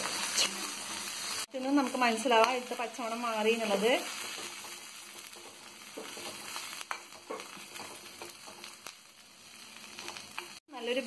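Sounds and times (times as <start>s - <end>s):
spices sizzling in oil: 0.0s - 11.0s.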